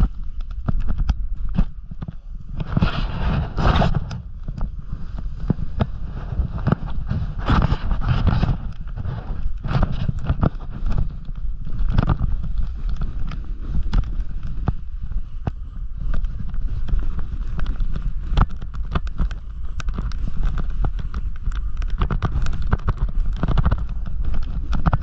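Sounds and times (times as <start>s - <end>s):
snowboard scraping over snow: 0.0s - 25.0s
wind rumble on microphone: 0.0s - 25.0s
board chattering over bumps: 5.5s - 25.0s.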